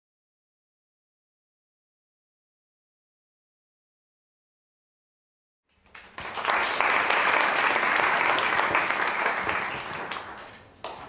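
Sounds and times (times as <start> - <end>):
small audience applauding: 5.7 - 11.0.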